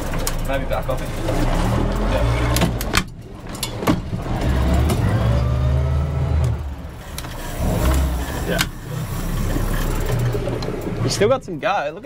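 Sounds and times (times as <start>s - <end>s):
boat engine running: 0.0s - 11.5s.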